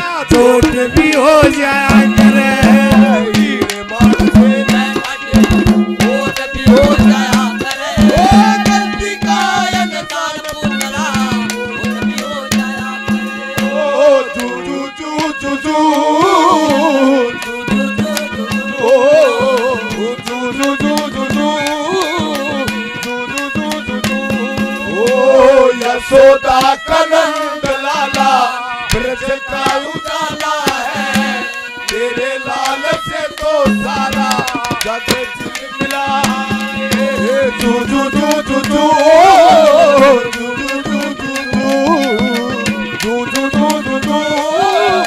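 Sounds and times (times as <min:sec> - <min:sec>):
fast hand drumming: 0:00.0 - 0:14.6, 0:15.2 - 0:45.0
harmonium drone: 0:00.0 - 0:45.0
clarinet melody: 0:11.7 - 0:14.9, 0:37.1 - 0:45.0.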